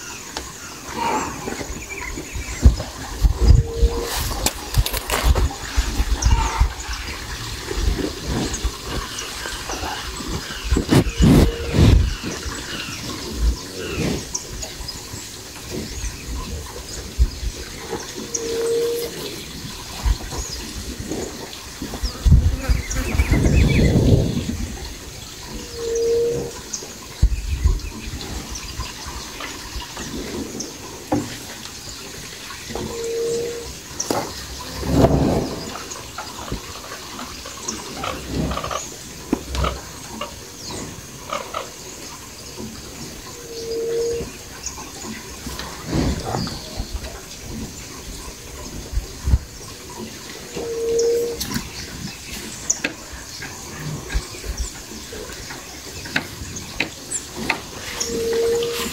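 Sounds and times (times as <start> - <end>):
small birds chirping: 0.0 - 58.9
cattle grunting: 0.8 - 1.8, 2.9 - 14.6, 32.8 - 37.2, 45.4 - 47.2
cow snuffling and blowing: 2.4 - 25.2, 30.0 - 40.0, 45.4 - 47.8, 56.0 - 58.9
dull low thumps: 10.2 - 12.6.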